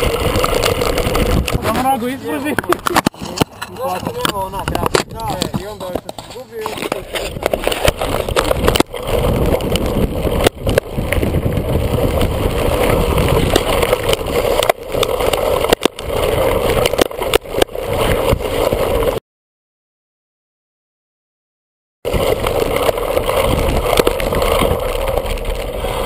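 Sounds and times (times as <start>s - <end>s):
wind rushing over microphone: 0.0s - 3.2s, 3.9s - 17.0s, 22.1s - 26.0s
bike rattling: 0.0s - 19.2s, 22.1s - 26.0s.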